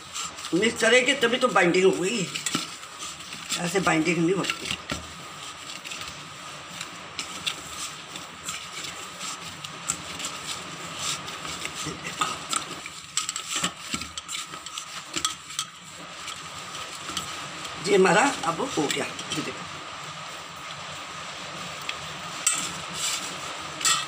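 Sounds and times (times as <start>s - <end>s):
hands kneading mixture in metal bowl: 0.0s - 24.0s
scrapes against metal bowl: 22.5s - 24.0s.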